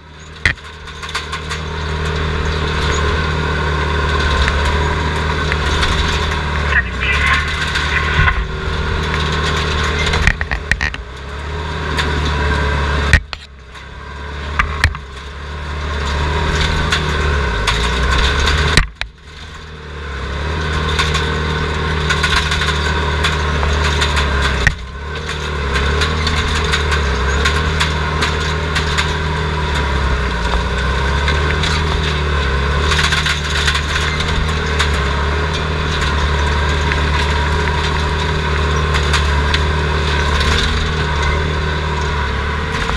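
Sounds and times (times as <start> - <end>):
loader engine running: 0.0 - 42.9.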